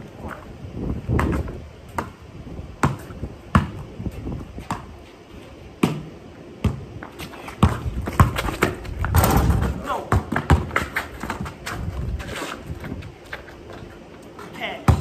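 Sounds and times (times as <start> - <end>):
basketball bouncing on concrete: 1.0 - 2.2, 2.8 - 5.0, 5.8 - 13.5, 14.6 - 15.0.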